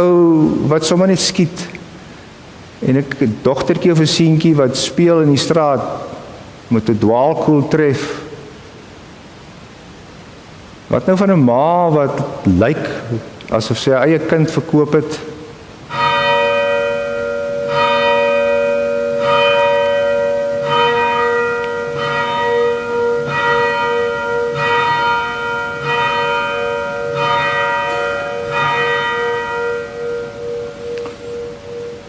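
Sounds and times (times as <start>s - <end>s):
church bell tolling: 15.9s - 32.0s.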